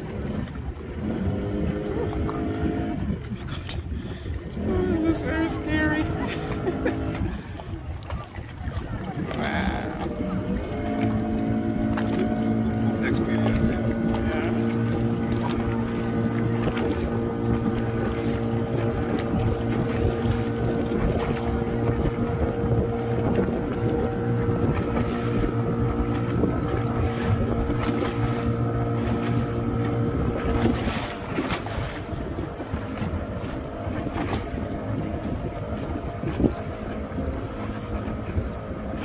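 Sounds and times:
boat engine running: 0.0s - 39.0s
water rushing past: 0.0s - 39.0s
wind buffeting microphone: 0.0s - 39.0s.

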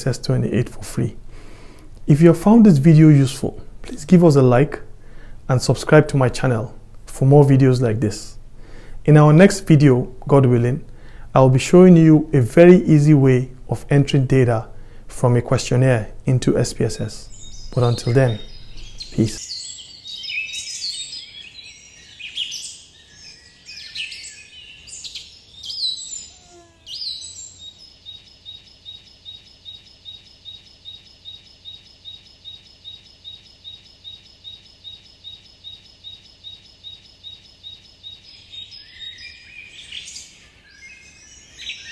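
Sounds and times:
birds chirping: 7.3s - 41.9s
repeating high bird chirp: 17.2s - 41.9s.

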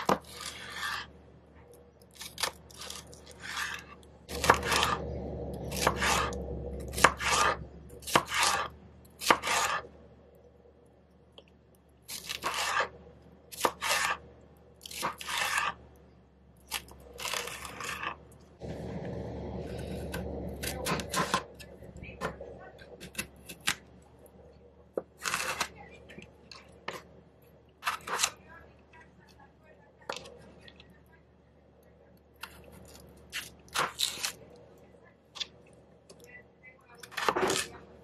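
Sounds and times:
knife cutting on plastic board: 0.0s - 1.2s, 2.1s - 9.9s, 12.1s - 15.9s, 16.7s - 18.2s, 19.6s - 23.9s, 25.0s - 25.9s, 27.8s - 28.4s, 37.0s - 37.9s.

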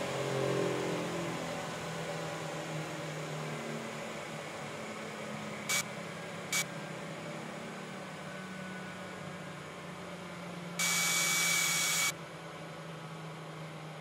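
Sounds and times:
pitched whir: 5.7s - 5.9s, 10.8s - 12.2s.

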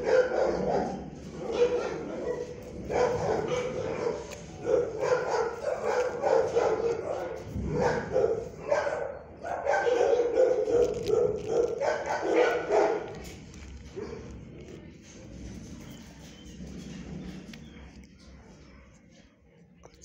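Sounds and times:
dogs barking and yipping: 0.0s - 13.3s.

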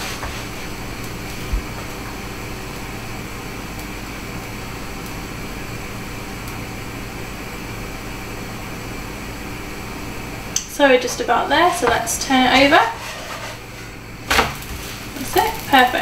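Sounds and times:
extractor fan whirring: 0.0s - 16.0s.

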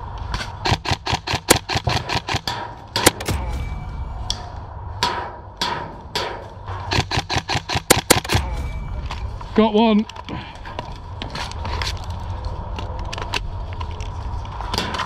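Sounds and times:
airsoft guns firing: 0.6s - 3.4s, 5.1s - 8.5s.

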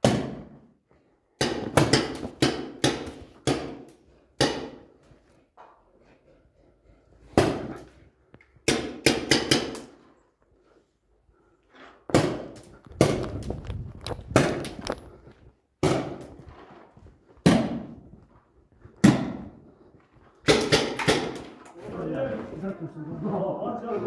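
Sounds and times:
paintball markers firing echoing shots: 1.4s - 4.9s, 8.6s - 10.0s, 12.1s - 15.0s, 19.0s - 19.6s, 20.4s - 21.6s.

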